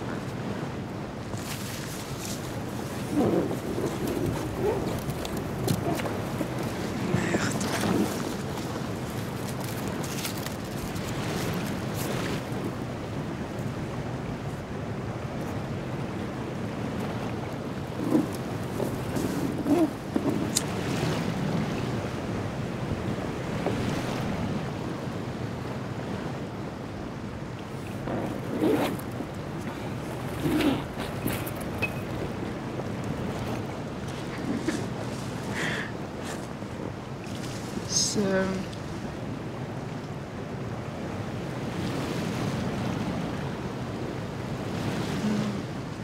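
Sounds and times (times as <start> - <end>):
sea waves washing: 0.0 - 46.0
wind blowing: 0.0 - 46.0
oars dipping in water: 1.2 - 12.9, 17.1 - 21.6, 27.6 - 37.9.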